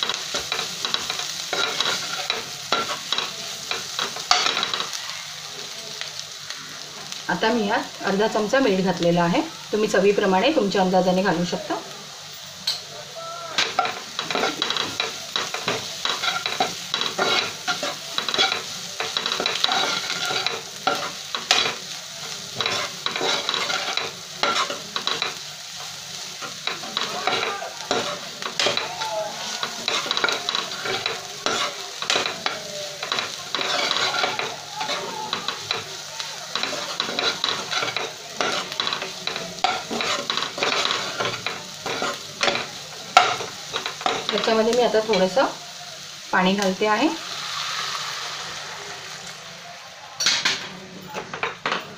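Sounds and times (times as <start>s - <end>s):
metal spoon scraping a pan: 0.0s - 5.0s, 13.6s - 45.4s
onions sizzling: 0.0s - 51.9s.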